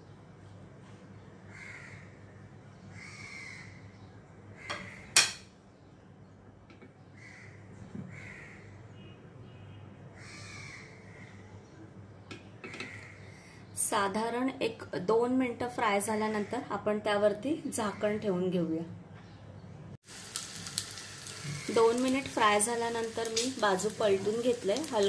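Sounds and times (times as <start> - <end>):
crow cawing: 1.5 - 2.2, 2.9 - 3.8, 4.6 - 5.2, 7.2 - 8.8, 10.2 - 11.4, 12.6 - 13.5.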